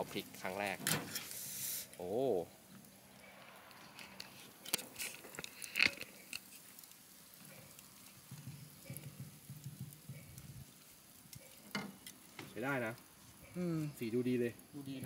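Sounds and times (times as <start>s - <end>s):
steak clicking on grill grate: 3.6s - 15.0s.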